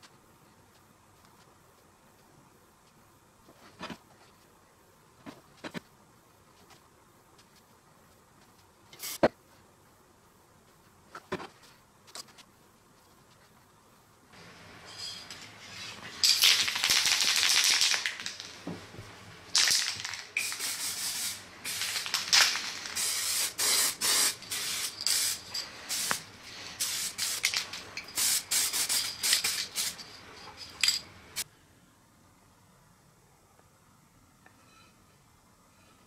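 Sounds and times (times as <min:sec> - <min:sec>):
aerosol can spraying: 0:20.4 - 0:30.0.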